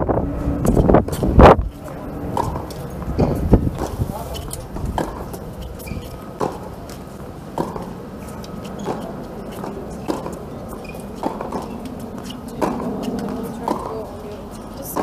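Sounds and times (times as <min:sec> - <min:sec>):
tennis ball hits: 0:02.3 - 0:14.2.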